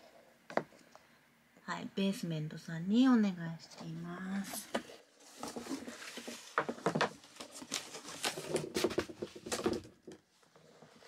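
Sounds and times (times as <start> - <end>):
cardboard box and wrapping rustling: 4.4 - 10.0.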